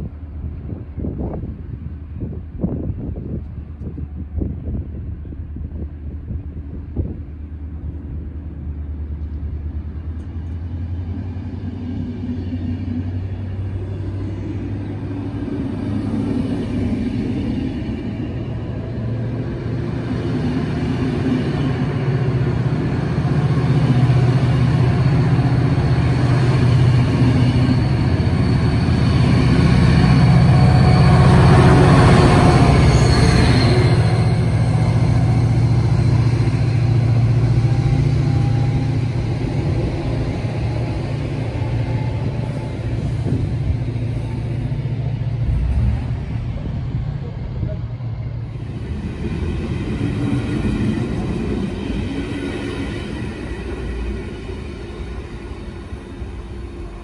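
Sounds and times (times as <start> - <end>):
locomotive engine drone: 0.0 - 57.0
train wheels on rails: 0.4 - 57.0.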